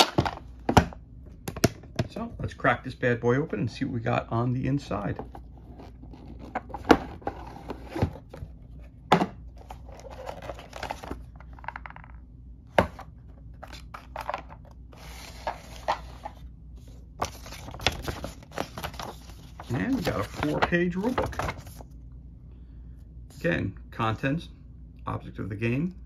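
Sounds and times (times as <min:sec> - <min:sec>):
paper and plastic rustling: 0:13.6 - 0:21.8.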